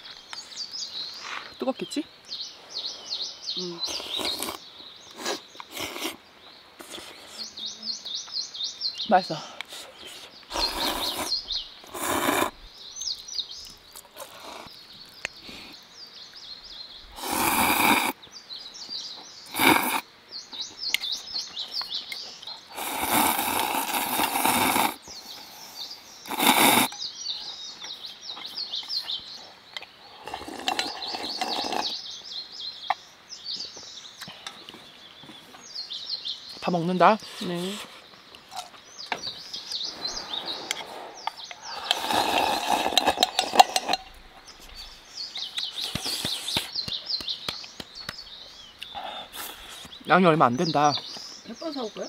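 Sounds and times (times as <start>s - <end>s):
small birds chirping: 0.0s - 52.0s
noodles slurped: 3.9s - 4.6s, 5.2s - 6.2s, 10.1s - 12.6s, 17.2s - 18.2s, 19.5s - 20.0s, 22.7s - 25.0s, 26.3s - 26.9s, 30.2s - 31.9s, 40.5s - 44.0s.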